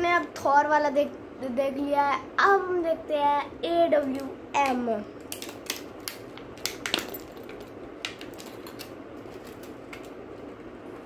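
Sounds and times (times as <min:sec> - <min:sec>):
packaging clicking and crackling: 0:05.2 - 0:10.2.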